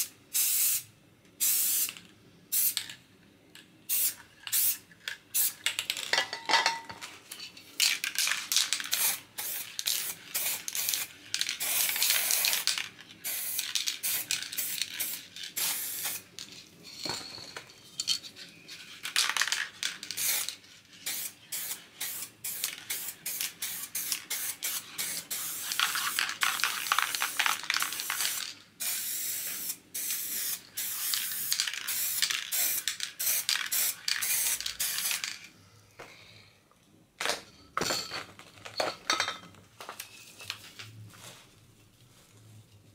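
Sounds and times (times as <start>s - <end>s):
spray paint can hissing: 0.0s - 2.8s, 3.9s - 5.6s, 8.2s - 16.3s, 19.1s - 35.3s.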